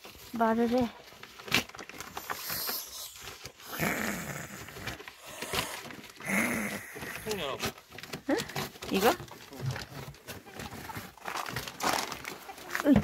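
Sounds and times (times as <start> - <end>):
goose hissing: 2.3 - 3.8.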